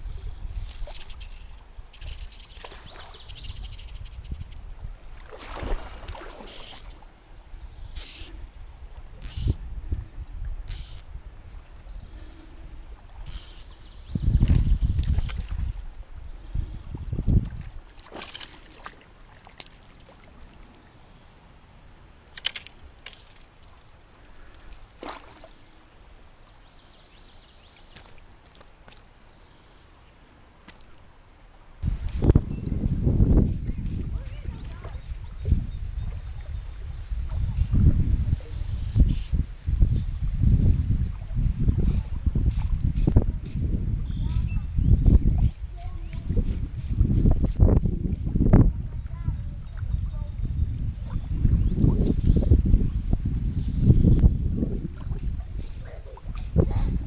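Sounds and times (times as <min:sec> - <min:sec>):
water sloshing and splashing: 0:00.0 - 0:03.4, 0:04.7 - 0:07.2, 0:14.4 - 0:21.1, 0:22.3 - 0:25.9
wind rumbling on microphone: 0:00.0 - 0:21.7, 0:31.8 - 0:57.0
fish splashing in water: 0:05.2 - 0:07.0, 0:17.9 - 0:20.5.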